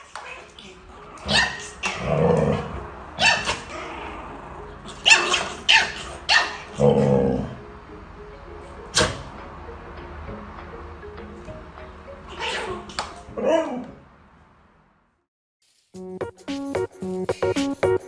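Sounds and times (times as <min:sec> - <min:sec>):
puppy yapping: 0:00.0 - 0:04.1, 0:04.9 - 0:07.0, 0:12.3 - 0:14.0.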